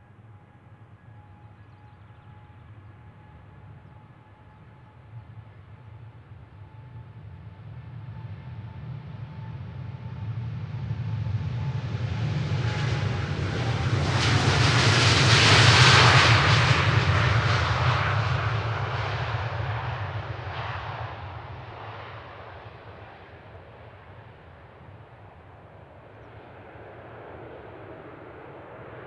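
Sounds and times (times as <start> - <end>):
jet engines roaring: 7.1 - 29.0.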